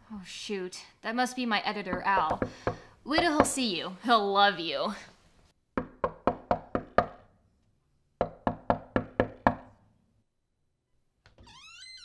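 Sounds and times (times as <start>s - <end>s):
knocking on a door: 1.9s - 3.6s, 5.8s - 7.2s, 8.2s - 9.7s.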